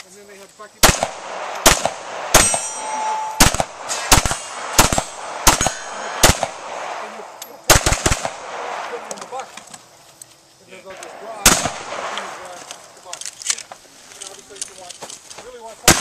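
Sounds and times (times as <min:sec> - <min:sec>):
handgun shots: 0:00.8 - 0:07.0
metallic rings of steel targets: 0:02.4 - 0:04.5, 0:05.6 - 0:06.2.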